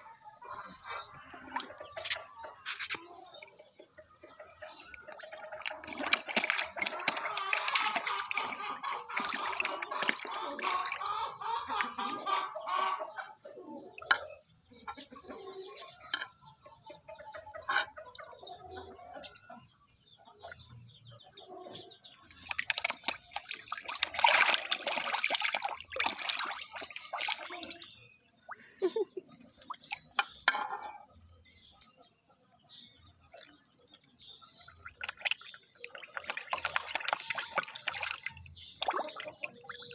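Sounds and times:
fish splashing and slurping: 0:00.3 - 0:03.6, 0:04.2 - 0:15.7, 0:22.0 - 0:31.6, 0:33.0 - 0:39.9.

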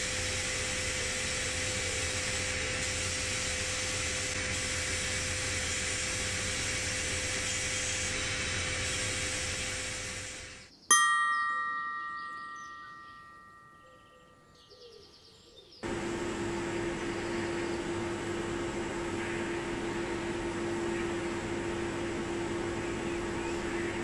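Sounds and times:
extractor fan humming: 0:00.0 - 0:14.7, 0:15.8 - 0:24.0
bright chime: 0:10.9 - 0:14.7.

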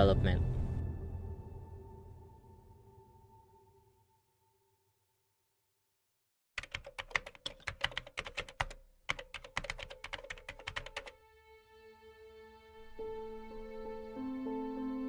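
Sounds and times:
soft music: 0:00.0 - 0:04.1, 0:10.4 - 0:15.0
keyboard typing clicks: 0:06.6 - 0:11.1.

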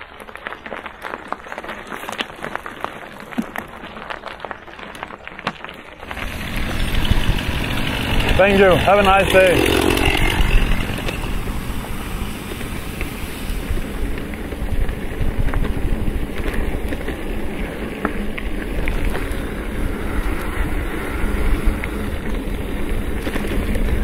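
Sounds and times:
bike tyres rumbling on dirt: 0:00.0 - 0:24.0
wind on microphone: 0:06.0 - 0:24.0.

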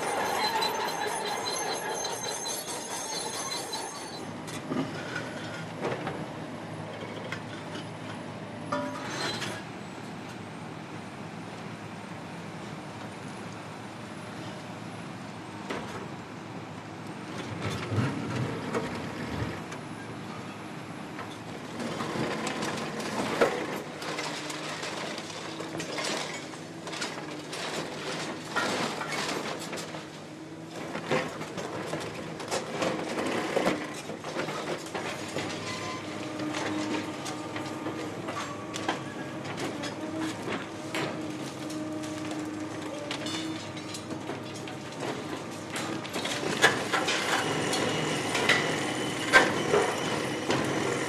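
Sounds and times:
debris and rebar clattering: 0:00.0 - 0:04.3, 0:21.9 - 0:30.1, 0:30.8 - 0:51.0
excavators running: 0:00.0 - 0:09.7, 0:17.0 - 0:51.0.

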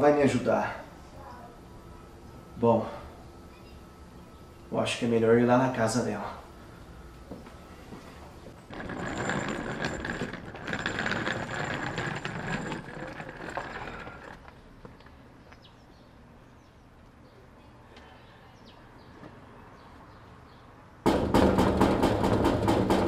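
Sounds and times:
suitcase wheels rattling on pavement: 0:08.5 - 0:15.0.

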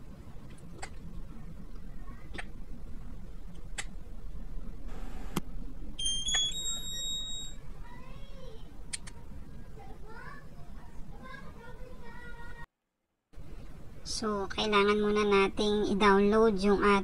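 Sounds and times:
sharp plastic clicks: 0:08.9 - 0:09.2.

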